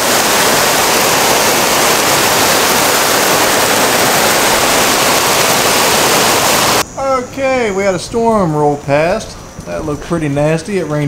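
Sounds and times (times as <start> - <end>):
heavy rain pouring: 0.0 - 6.9.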